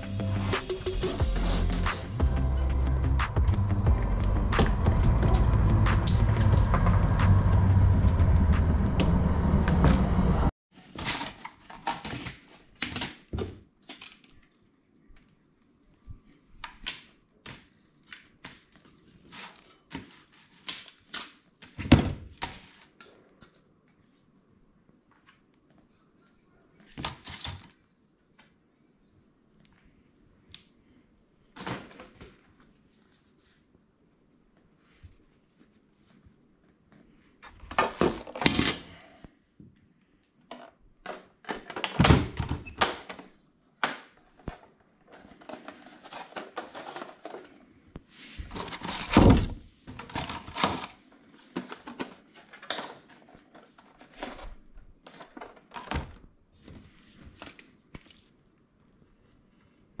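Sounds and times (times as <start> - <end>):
plastic parts clattering on wood: 40.5 - 47.6, 48.5 - 56.2.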